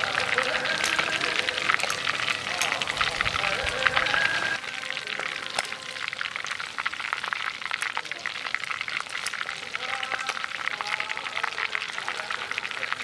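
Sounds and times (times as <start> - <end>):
meat deep-frying in hot oil: 0.0 - 13.0.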